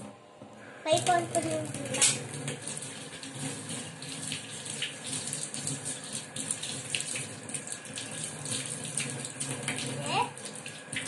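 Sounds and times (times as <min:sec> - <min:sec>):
hands washing under water: 0:00.9 - 0:11.0
tap water running into sink: 0:00.9 - 0:11.0.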